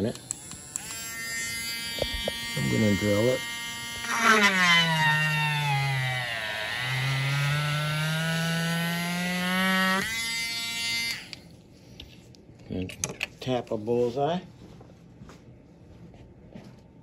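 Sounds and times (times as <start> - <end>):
drill boring into glass: 0.0 - 11.4.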